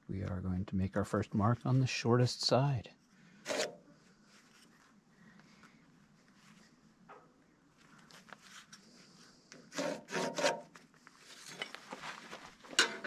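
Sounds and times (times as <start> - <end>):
metal square scraping on wood: 3.4 - 3.8, 9.7 - 11.8.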